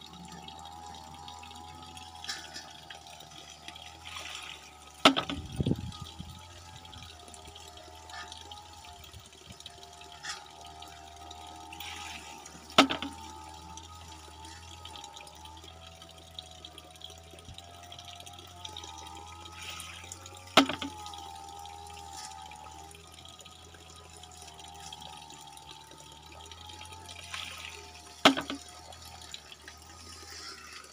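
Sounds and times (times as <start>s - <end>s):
water running: 0.0s - 30.9s
water splash: 3.9s - 5.7s, 11.8s - 13.4s, 27.2s - 29.2s
bamboo knock: 5.0s - 5.5s, 20.6s - 20.9s
bamboo tube knocking: 5.0s - 5.6s, 12.8s - 13.2s, 20.6s - 21.0s, 28.2s - 28.6s.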